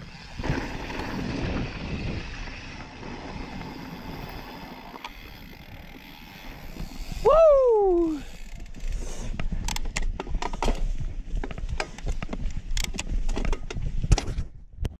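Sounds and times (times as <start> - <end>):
bike chain rattling: 0.0 - 10.8
wind rumbling on microphone: 0.0 - 15.0.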